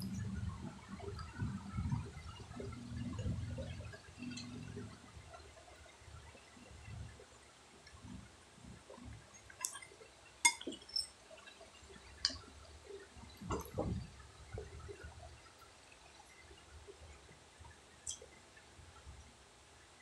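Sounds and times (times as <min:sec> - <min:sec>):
metal spoon clinking on plate: 0:10.5 - 0:11.1.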